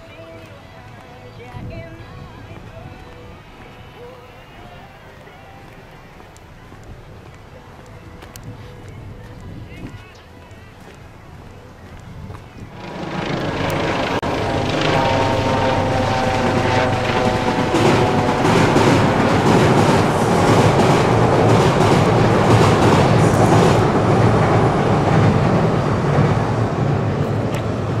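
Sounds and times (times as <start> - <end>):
train rumbling over bridge: 12.6 - 28.0
train whine: 12.6 - 28.0
wheels clattering over rail joints: 12.9 - 25.7.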